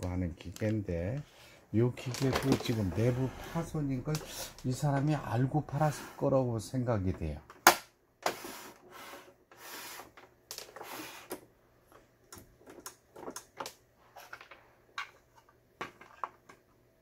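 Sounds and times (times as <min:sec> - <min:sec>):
scraping sounds: 0:02.0 - 0:06.3.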